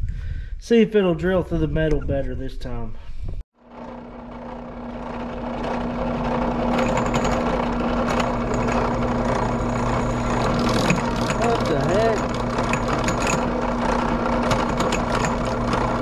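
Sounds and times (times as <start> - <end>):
drill bit grinding steel: 3.6 - 16.0
drill press motor hum: 3.6 - 16.0.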